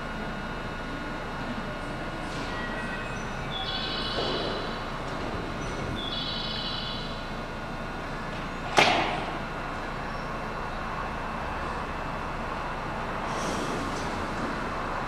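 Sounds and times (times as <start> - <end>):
steady hum: 0.0 - 15.0
train doors slamming shut: 4.0 - 5.8, 8.6 - 9.4.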